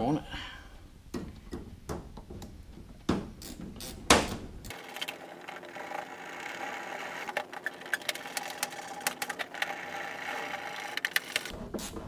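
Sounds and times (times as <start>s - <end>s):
faint mechanical whir: 4.6s - 11.8s.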